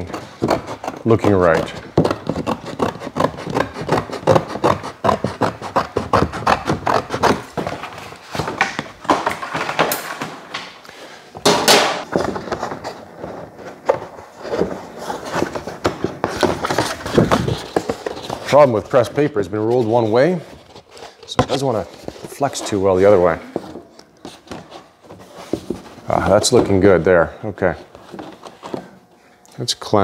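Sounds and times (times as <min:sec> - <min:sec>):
stiff paper crackling and rustling: 0:14.2 - 0:19.1.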